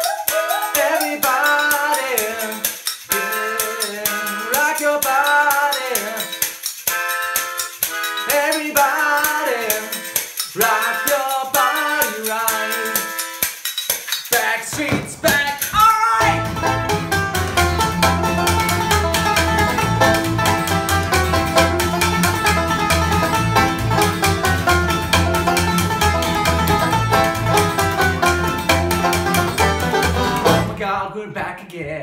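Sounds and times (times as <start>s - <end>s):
picked banjo: 0.0s - 13.4s, 15.6s - 30.8s
strummed acoustic guitar: 14.4s - 30.8s
plucked double bass: 14.8s - 30.9s.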